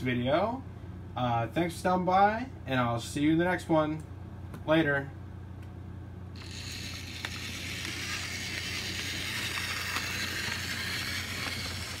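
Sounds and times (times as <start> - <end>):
low steady hum: 0.0 - 12.0
model train motor whirring: 6.4 - 12.0
wheels clicking on rails: 6.4 - 12.0.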